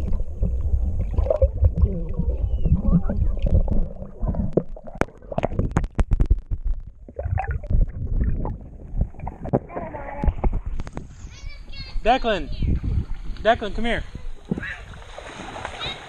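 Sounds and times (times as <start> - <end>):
muffled underwater wash: 0.0 - 11.3.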